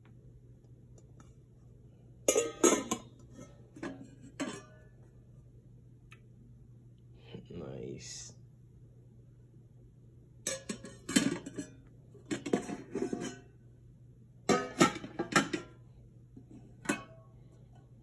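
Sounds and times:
metal plate covers clanking: 2.3 - 4.8, 10.5 - 13.5, 14.5 - 15.8, 16.8 - 17.2.

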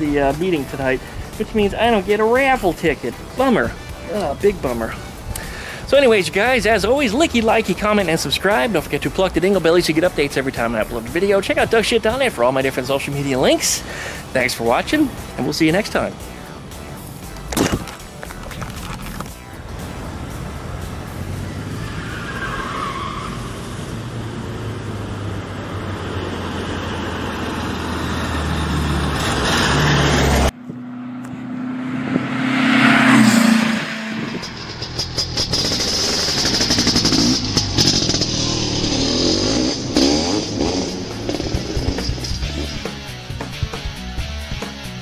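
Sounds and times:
car engine running: 30.5 - 44.6.

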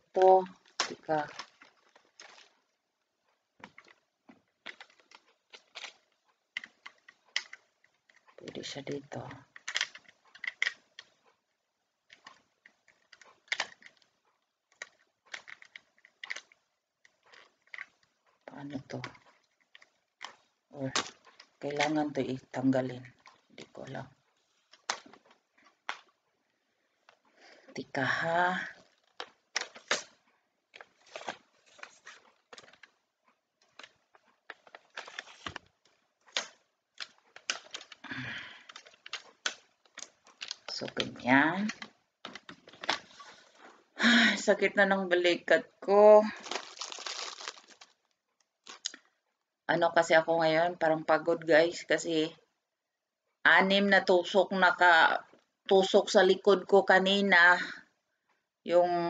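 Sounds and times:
tripod clamp clicking and rattling: 4.6 - 11.2, 12.1 - 18.2, 28.7 - 33.0, 33.6 - 43.2.

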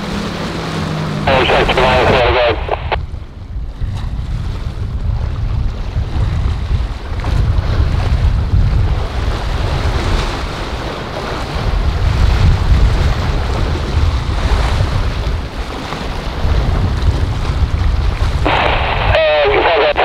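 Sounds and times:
boat engines and spray: 0.0 - 3.0, 8.9 - 20.0
rough surf: 0.0 - 3.0, 3.7 - 20.0
wind buffeting microphone: 1.7 - 19.2.

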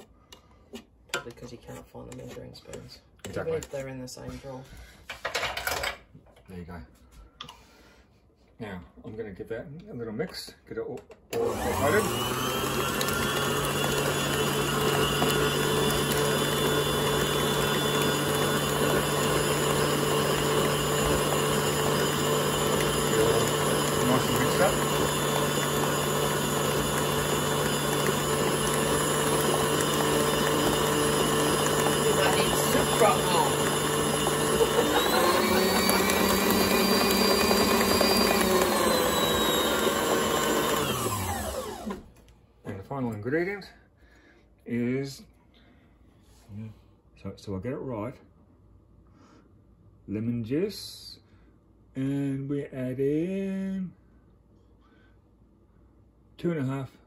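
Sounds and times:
stand mixer motor hum: 11.3 - 42.1.

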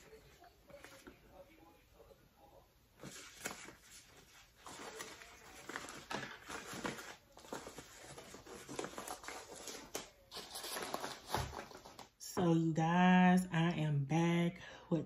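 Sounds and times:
plastic sleeve rustling and crinkling: 3.0 - 12.1.

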